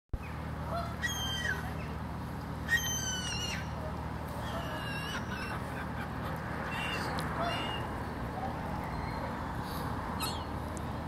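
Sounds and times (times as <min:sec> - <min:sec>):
gulls calling: 0:00.2 - 0:02.0, 0:02.6 - 0:10.6.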